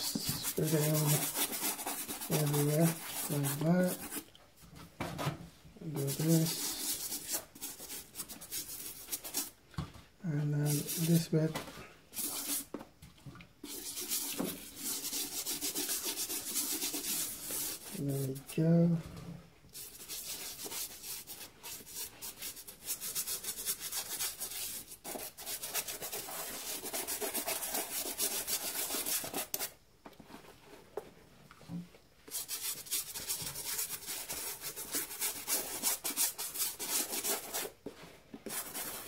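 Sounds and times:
toothbrush scrubbing a shoe: 0:00.0 - 0:04.3, 0:06.0 - 0:09.5, 0:10.6 - 0:11.3, 0:12.2 - 0:12.7, 0:13.6 - 0:18.6, 0:19.7 - 0:29.7, 0:32.3 - 0:37.8, 0:38.4 - 0:39.0.

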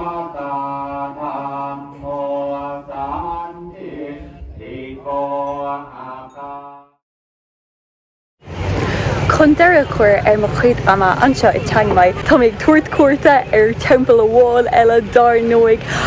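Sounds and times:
men chanting in unison: 0:00.0 - 0:07.0.

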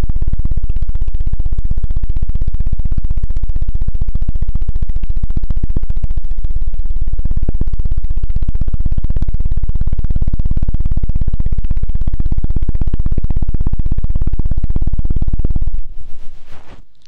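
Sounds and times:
hand patting over microphone: 0:15.9 - 0:17.0.

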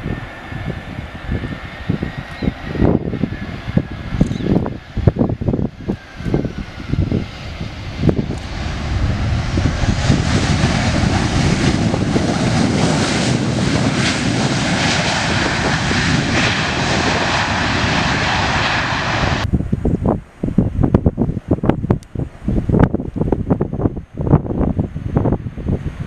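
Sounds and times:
jet engines roaring: 0:00.0 - 0:20.4
wind buffeting microphone: 0:00.0 - 0:26.0.

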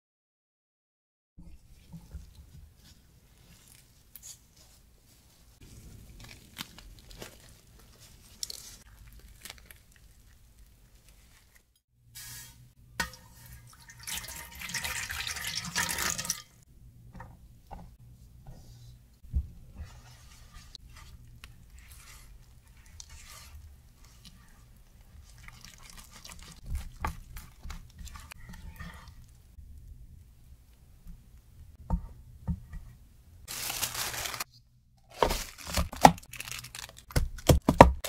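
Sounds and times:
water poured into metal container: 0:12.2 - 0:16.6.

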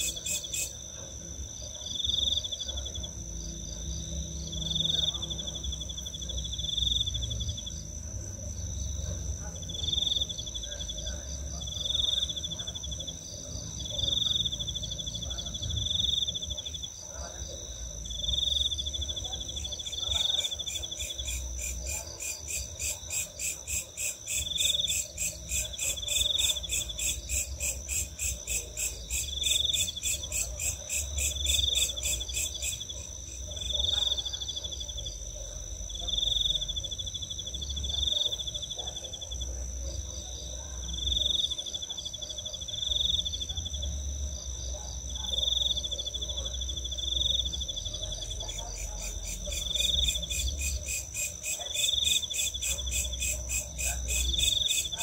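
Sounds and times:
fast pulsing insect chirp: 0:00.0 - 0:00.9, 0:17.6 - 0:38.8, 0:45.4 - 0:55.0
repeating insect call: 0:00.0 - 0:00.9, 0:09.6 - 0:39.5, 0:40.9 - 0:55.0
high insect trill: 0:40.3 - 0:55.0.

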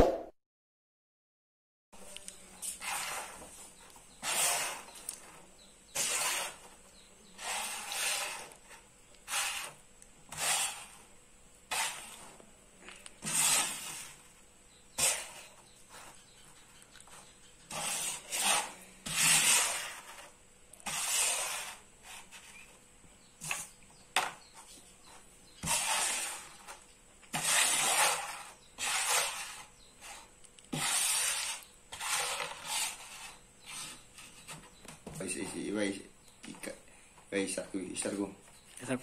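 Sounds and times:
coins sliding across board: 0:04.2 - 0:05.1, 0:05.9 - 0:06.8, 0:07.4 - 0:11.0, 0:13.2 - 0:14.2, 0:17.7 - 0:22.5, 0:25.6 - 0:34.4.

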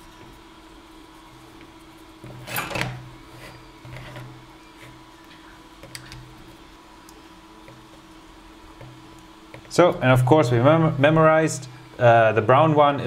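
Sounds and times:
faint steady hum: 0:00.0 - 0:13.0
cable rubbing scrape: 0:02.2 - 0:05.5.

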